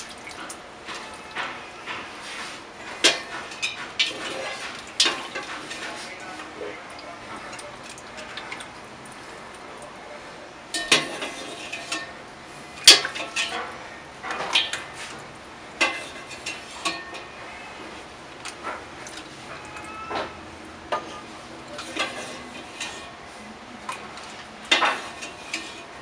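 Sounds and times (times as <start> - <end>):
kitchenware knocking and clinking: 10.7 - 12.2, 24.7 - 25.8.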